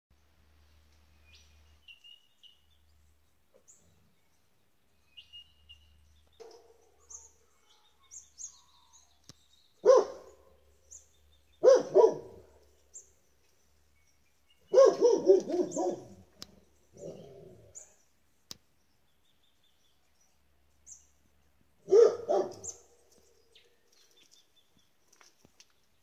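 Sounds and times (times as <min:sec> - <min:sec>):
small birds chirping: 0:00.6 - 0:26.0
dog barking: 0:09.8 - 0:10.4, 0:11.6 - 0:12.5, 0:14.7 - 0:16.2, 0:21.9 - 0:22.8.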